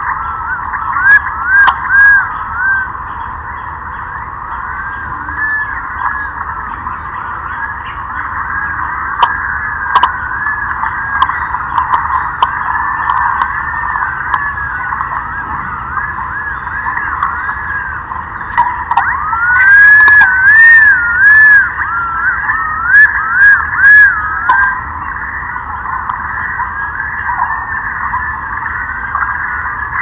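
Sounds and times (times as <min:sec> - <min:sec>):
pigeons whistling calls: 0:00.0 - 0:30.0
short loud bird notes: 0:00.0 - 0:30.0
bird bouncing whistled phrase: 0:00.4 - 0:02.9, 0:18.5 - 0:24.8.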